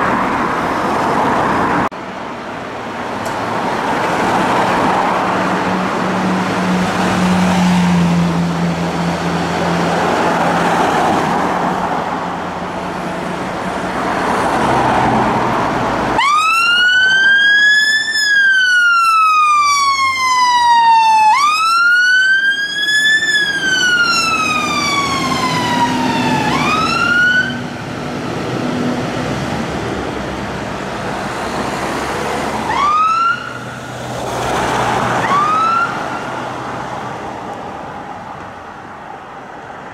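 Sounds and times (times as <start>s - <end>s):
electronic siren wailing: 16.2s - 27.6s, 35.2s - 36.0s.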